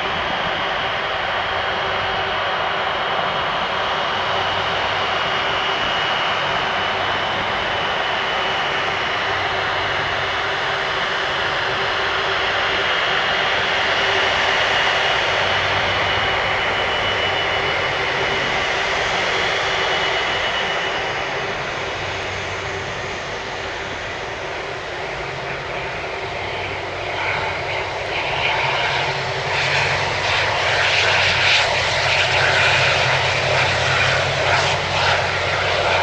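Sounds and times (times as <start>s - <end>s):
jet engines taxiing with whine: 0.0s - 36.0s.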